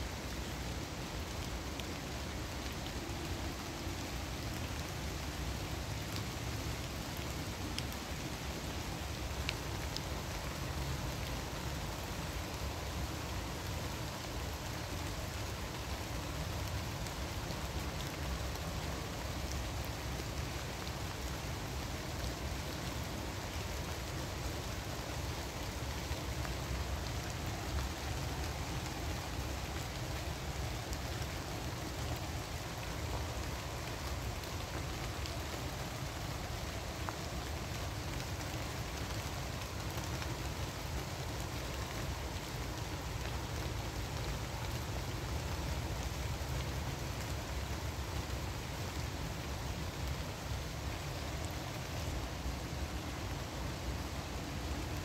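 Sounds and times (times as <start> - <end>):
rain pattering on leaves: 0.0 - 55.0.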